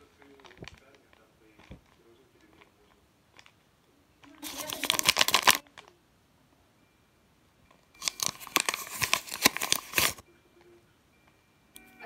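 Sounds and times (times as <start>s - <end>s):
paper crinkling: 4.2s - 5.9s, 8.0s - 10.2s.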